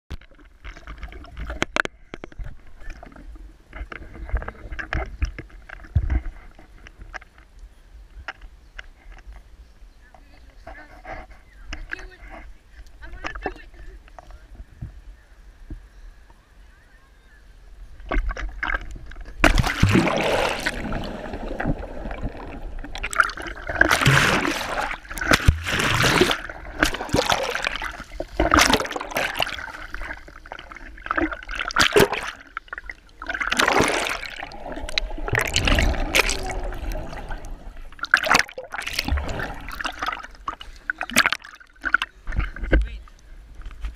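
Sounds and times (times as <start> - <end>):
water splashing and sloshing: 0.1 - 7.5, 18.0 - 43.9
water gurgling: 18.1 - 43.3
loud splash into pool: 19.4 - 21.8, 23.0 - 29.6.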